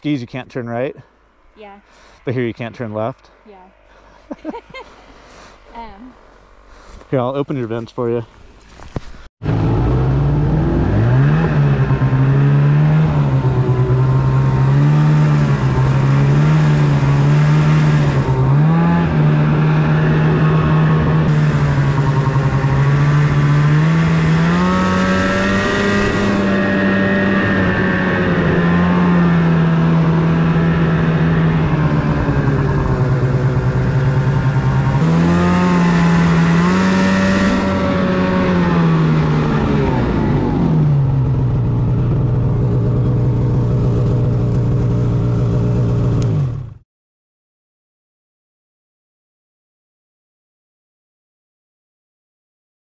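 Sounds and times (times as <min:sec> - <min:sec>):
snowmobile engine revving: 0:09.4 - 0:46.7.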